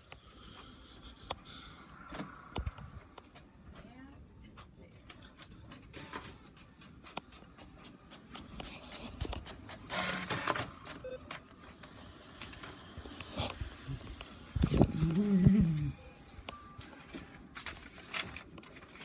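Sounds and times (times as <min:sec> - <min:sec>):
inkjet printer working: 0:05.9 - 0:10.9
paper rustling: 0:16.9 - 0:19.0.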